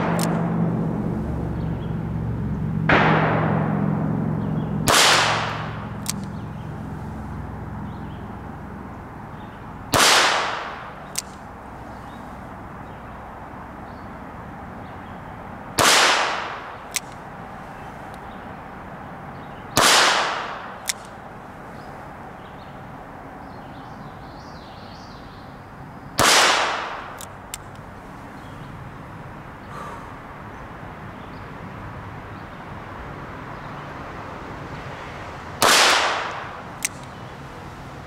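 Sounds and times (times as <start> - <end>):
revolver shots: 2.6 - 6.7.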